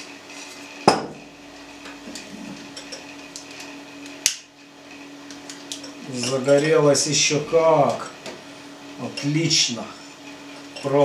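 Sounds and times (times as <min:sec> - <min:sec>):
glass bottle knocking on wood: 0:00.9 - 0:01.2
lighter sparking click: 0:04.2 - 0:04.5.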